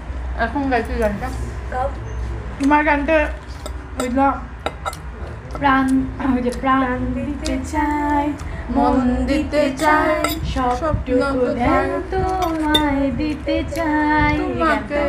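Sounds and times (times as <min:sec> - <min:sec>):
women singing together: 0:05.6 - 0:15.0.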